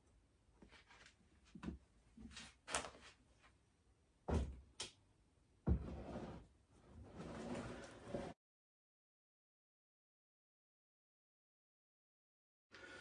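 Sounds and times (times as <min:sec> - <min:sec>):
plastic scraping on shelf: 0:05.7 - 0:08.4.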